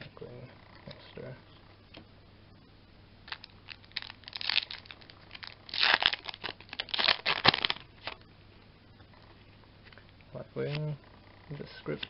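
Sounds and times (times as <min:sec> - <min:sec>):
foil wrapper tearing and crinkling: 0:03.3 - 0:08.2.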